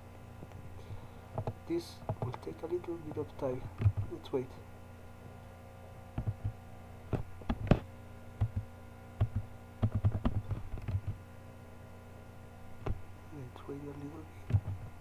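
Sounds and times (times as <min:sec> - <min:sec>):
low electrical hum: 0:00.0 - 0:15.0
keyboard and mouse clicks: 0:03.8 - 0:04.1, 0:06.2 - 0:07.8, 0:08.4 - 0:11.2, 0:14.5 - 0:14.9.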